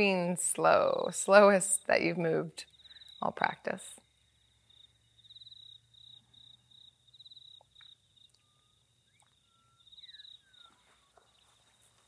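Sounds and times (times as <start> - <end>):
cricket trilling: 2.6 - 11.8.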